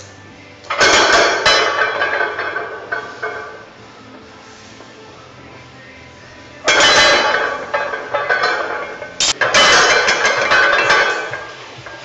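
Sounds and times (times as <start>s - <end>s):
barbell plates clanking: 0.7s - 3.7s, 6.6s - 12.0s
loud metal clatter: 6.6s - 11.4s.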